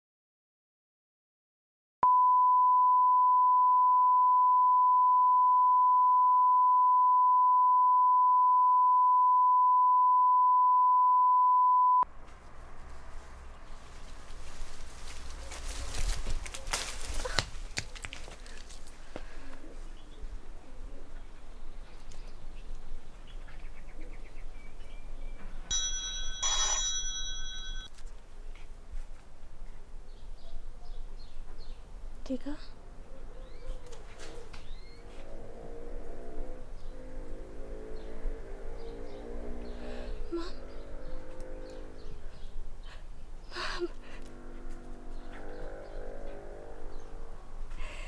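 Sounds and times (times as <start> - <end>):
ringing tone of several pitches: 25.7 - 27.9.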